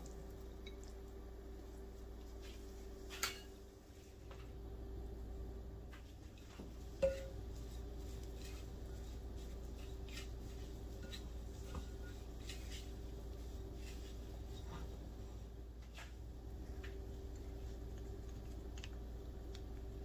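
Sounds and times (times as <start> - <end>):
steady low hum: 0.0 - 20.0
spatula scraping a glass bowl: 9.7 - 13.0.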